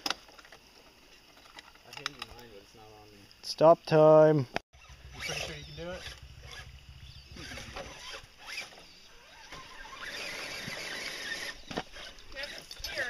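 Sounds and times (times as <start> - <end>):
toy truck motor running: 4.8 - 6.7, 7.3 - 13.0.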